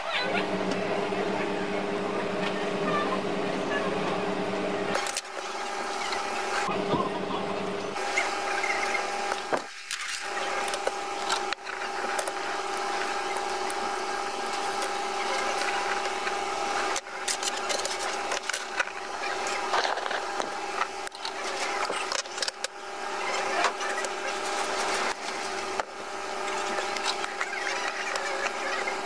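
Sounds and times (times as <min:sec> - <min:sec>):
steady mechanical hum: 0:00.0 - 0:29.0
circuit boards scratching and clicking: 0:08.0 - 0:29.0.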